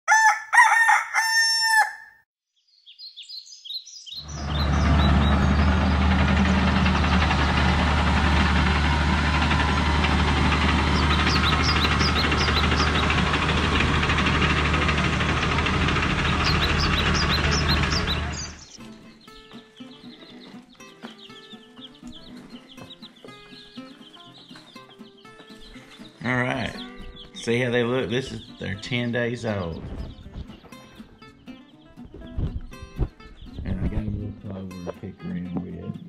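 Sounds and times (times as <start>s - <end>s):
rooster crowing: 0.0s - 2.2s
small birds chirping: 2.5s - 13.9s, 15.6s - 36.0s
bulldozer engine droning: 4.2s - 18.8s.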